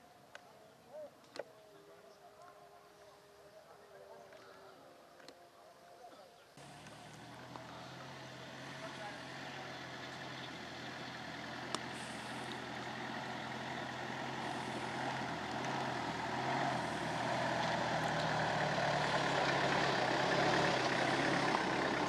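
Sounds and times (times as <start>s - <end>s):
pickup truck engine running: 6.6s - 22.0s.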